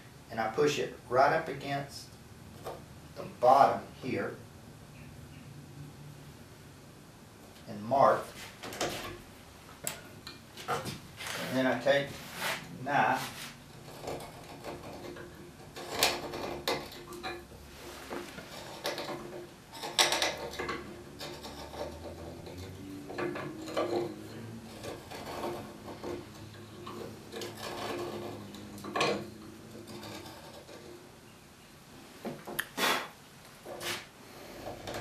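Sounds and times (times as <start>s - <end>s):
knife scraping wood: 10.6s - 31.1s.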